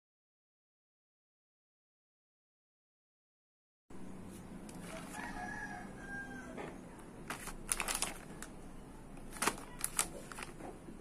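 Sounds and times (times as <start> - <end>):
plastic packaging crinkling: 4.6 - 5.4, 7.2 - 11.0
rooster crowing: 4.8 - 6.8.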